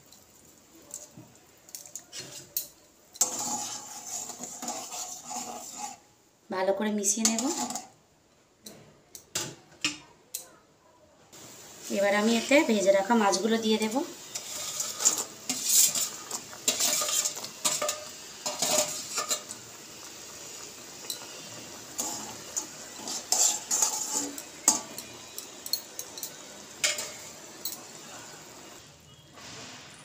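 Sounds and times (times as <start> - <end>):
gravy sizzling: 0.0 - 8.1, 11.3 - 30.0
metal utensils scraping a pan: 1.7 - 6.1, 7.1 - 8.0, 12.1 - 28.8.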